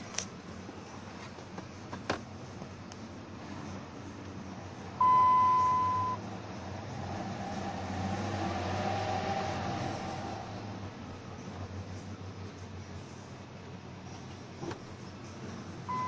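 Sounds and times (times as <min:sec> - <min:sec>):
dashboard electronic beep: 0:05.0 - 0:06.2.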